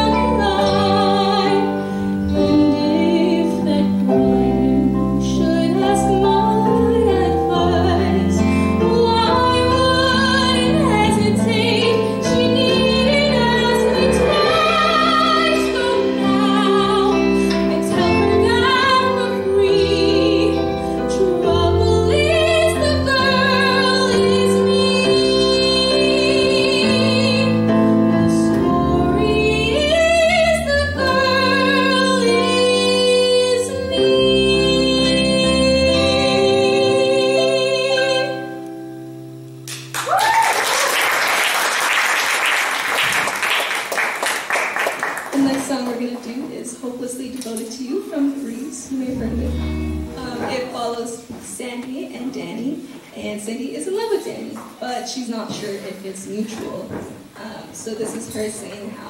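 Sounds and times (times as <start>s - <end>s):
band with keyboard and guitars: 0.0s - 23.5s, 49.0s - 50.8s
woman singing: 0.0s - 38.6s, 45.4s - 59.0s
audience applauding: 39.7s - 45.7s.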